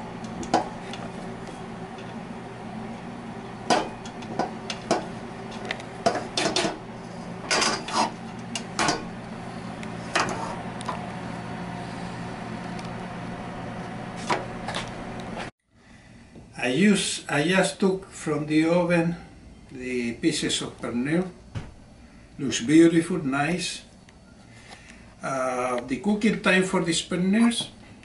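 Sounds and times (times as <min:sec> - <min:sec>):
spatula scraping metal pot: 0:06.0 - 0:09.0, 0:10.0 - 0:10.6.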